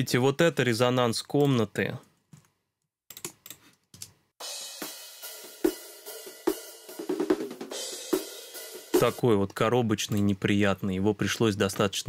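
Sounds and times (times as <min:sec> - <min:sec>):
drums with cymbals and hi-hat: 0:04.4 - 0:10.2.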